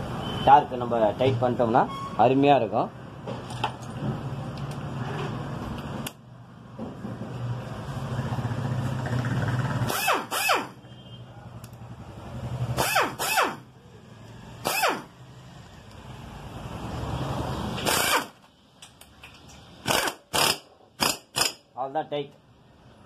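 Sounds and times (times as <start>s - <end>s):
impact wrench bursts: 9.7s - 10.8s, 12.7s - 13.8s, 14.6s - 15.2s, 17.7s - 18.4s, 19.8s - 21.8s.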